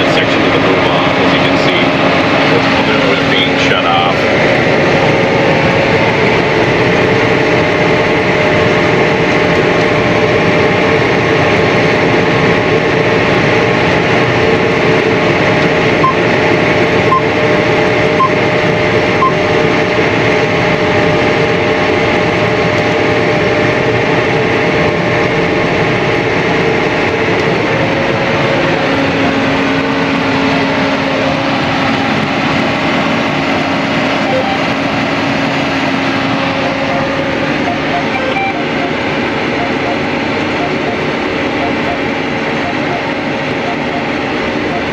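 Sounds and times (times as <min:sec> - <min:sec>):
sprayer engine drone from cab: 0:00.0 - 0:44.9
short electronic beeps: 0:16.0 - 0:16.2, 0:19.2 - 0:19.4, 0:34.3 - 0:34.8, 0:36.6 - 0:44.9
low steady hum: 0:34.2 - 0:44.9.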